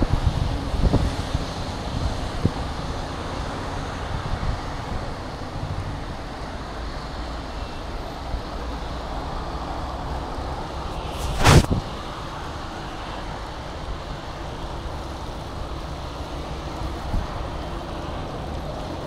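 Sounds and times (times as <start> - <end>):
wind on the microphone: 0.0 - 7.0, 9.3 - 12.5
traffic on a wet road: 0.0 - 19.0.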